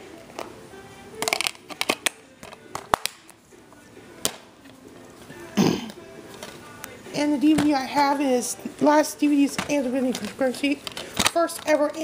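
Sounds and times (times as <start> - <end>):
plastic cases clicking: 1.2 - 3.4, 9.6 - 12.0.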